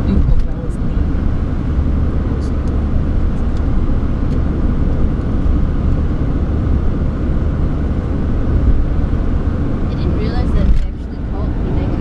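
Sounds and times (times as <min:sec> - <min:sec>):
road rumble inside car: 0:00.0 - 0:12.0.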